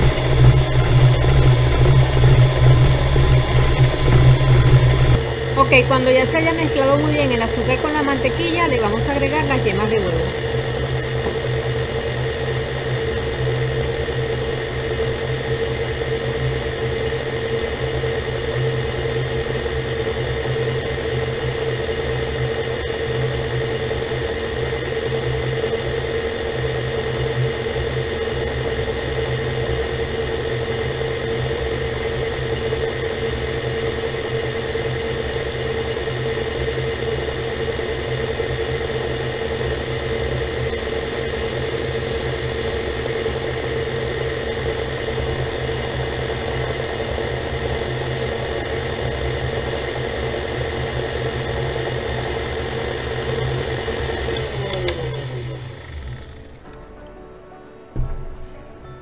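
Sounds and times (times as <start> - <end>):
electric stand mixer running: 0.0 - 56.8.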